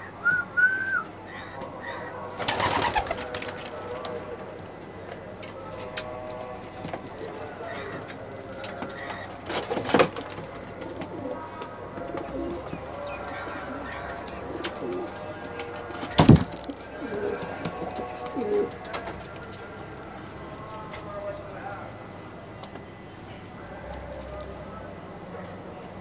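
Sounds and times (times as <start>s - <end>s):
pigeons cooing: 1.3s - 4.3s, 5.9s - 18.8s.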